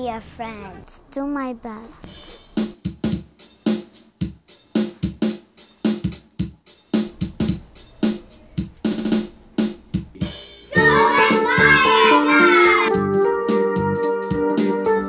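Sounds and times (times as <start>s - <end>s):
electronic drum beat: 2.1s - 12.9s.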